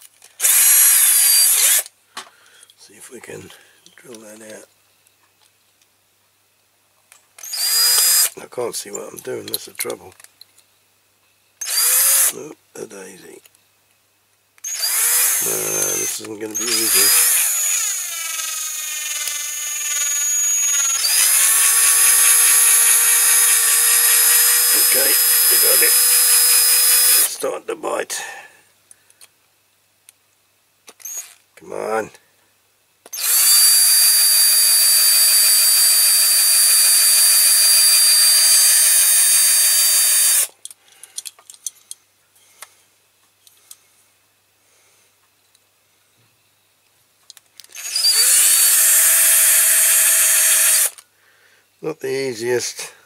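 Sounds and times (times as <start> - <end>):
cordless drill drilling into metal: 0.4 - 1.9, 7.4 - 8.3, 11.6 - 12.3, 14.6 - 27.4, 31.0 - 31.4, 33.1 - 40.5, 47.7 - 51.0.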